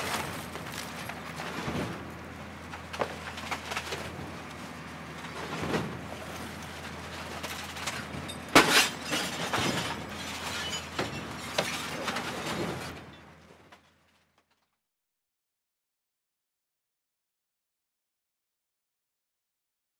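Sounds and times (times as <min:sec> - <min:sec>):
shattering debris crackle: 0:00.0 - 0:02.1, 0:05.3 - 0:13.1.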